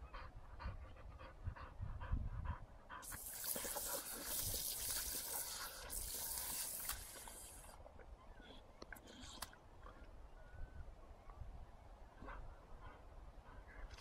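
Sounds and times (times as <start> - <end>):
dog panting quickly: 0.0 - 4.0
splashing in a muddy puddle: 3.0 - 7.8.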